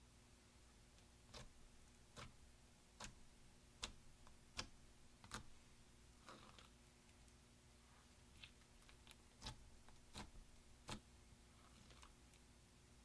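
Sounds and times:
fingertips poking sticky slime: 1.2s - 5.6s, 8.8s - 12.2s.

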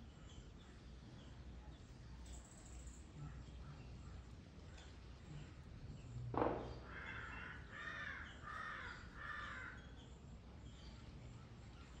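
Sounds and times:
loud thump: 6.3s - 6.9s
crow cawing: 6.8s - 9.8s.

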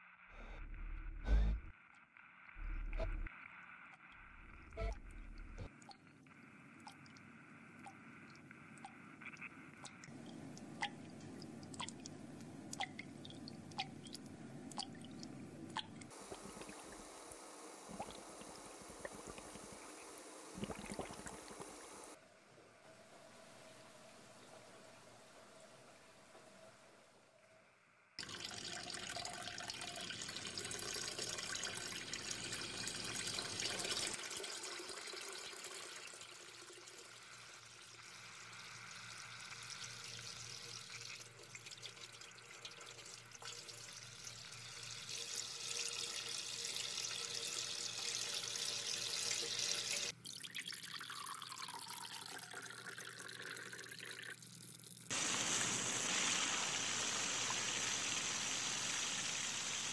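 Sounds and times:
radio tuning tone falling: 2.6s - 5.7s
shower head spraying water: 55.1s - 59.9s.

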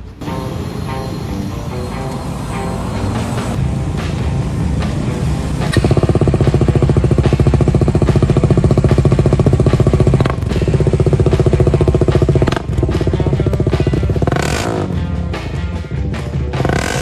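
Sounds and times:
motorcycle engine idling: 3.5s - 15.1s.

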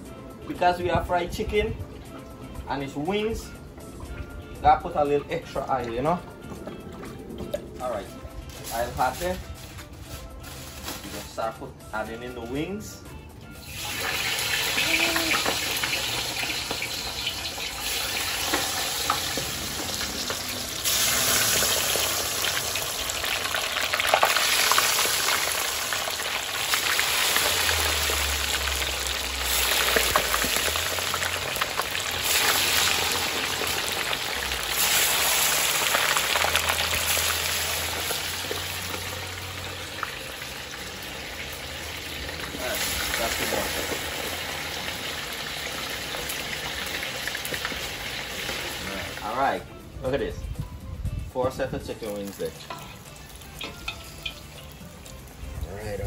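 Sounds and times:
wings deep-frying in hot oil: 13.4s - 49.6s, 51.9s - 55.9s.

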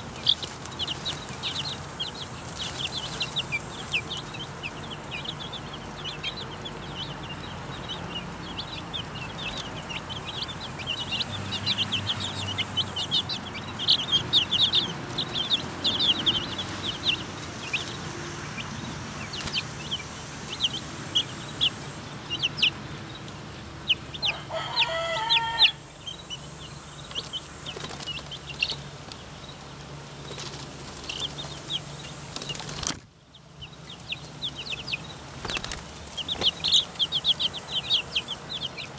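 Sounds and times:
chicks peeping: 0.0s - 38.9s
longer lower chick call: 23.9s - 26.5s
wing flutters: 32.3s - 33.1s, 35.3s - 36.8s.

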